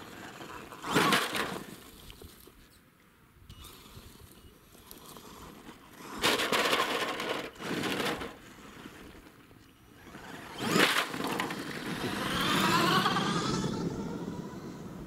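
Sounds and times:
electric motor whine: 9.8s - 15.0s.

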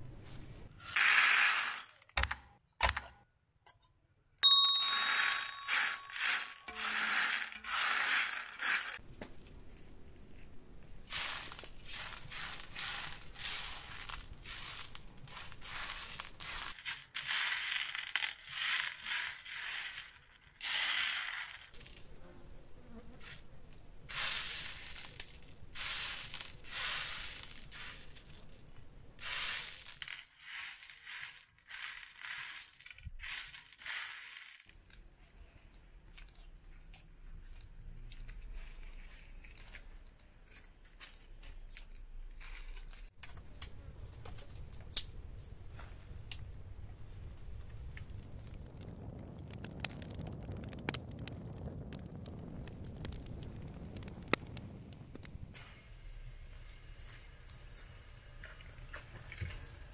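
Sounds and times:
metal tray ringing: 4.4s - 6.8s
beans rattling on metal tray: 5.1s - 9.0s, 11.1s - 22.0s, 24.1s - 28.5s, 29.2s - 34.7s.

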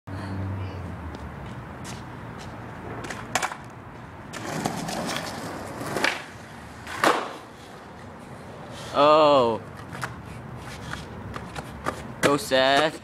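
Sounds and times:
skateboard wheels rolling on concrete: 0.9s - 13.0s
skateboard clacks: 2.9s - 3.7s, 4.3s - 7.5s, 10.8s - 13.0s.

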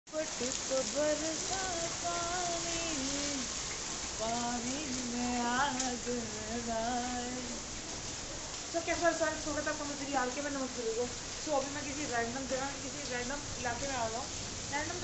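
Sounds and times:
person singing slow tune: 0.1s - 3.6s, 4.2s - 7.7s
rain falling: 0.1s - 15.0s.

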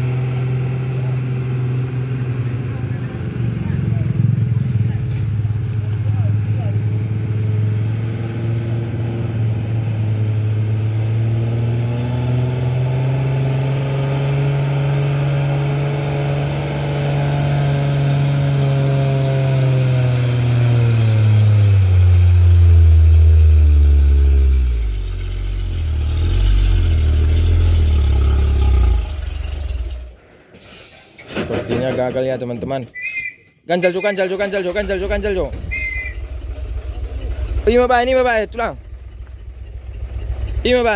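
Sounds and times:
truck diesel engine labouring: 0.0s - 31.7s, 32.9s - 40.9s.

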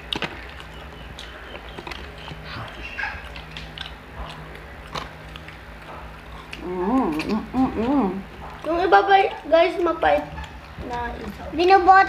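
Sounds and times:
sharp clicks and smacks: 0.0s - 6.6s
biting and chewing food: 0.0s - 12.0s.

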